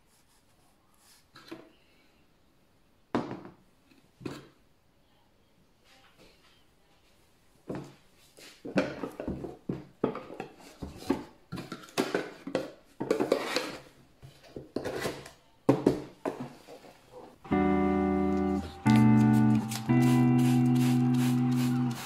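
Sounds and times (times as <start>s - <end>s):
guitar music: 17.4s - 22.0s.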